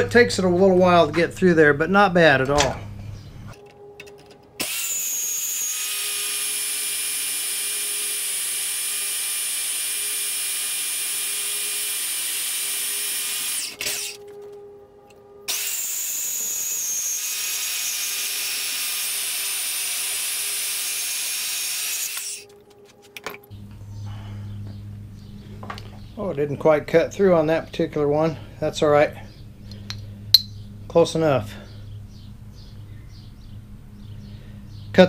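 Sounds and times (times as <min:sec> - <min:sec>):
bandsaw cutting steel: 0:04.6 - 0:14.5, 0:15.4 - 0:22.6.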